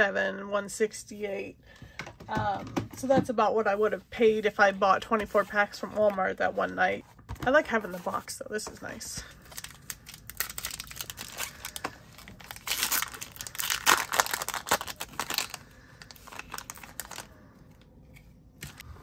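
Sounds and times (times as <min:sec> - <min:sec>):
foil wrapper tearing and crinkling: 0:09.4 - 0:17.3.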